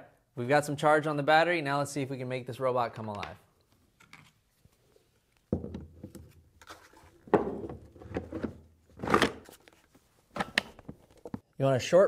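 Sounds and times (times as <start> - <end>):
plastic scraping and knocking: 7.2 - 9.5.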